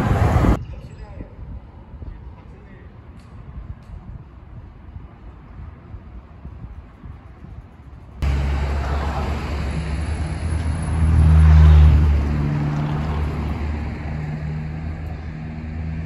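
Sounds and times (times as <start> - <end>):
vehicle engine passing: 8.2 - 16.0.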